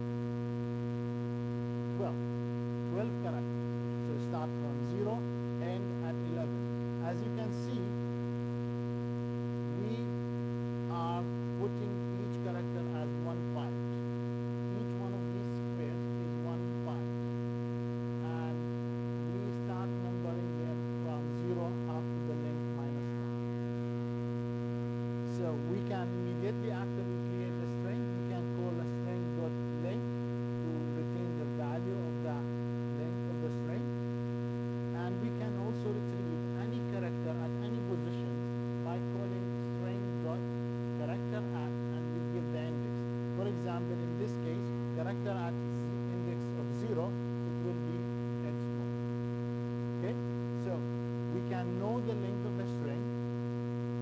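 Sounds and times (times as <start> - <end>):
electrical mains hum: 0.0 - 54.0.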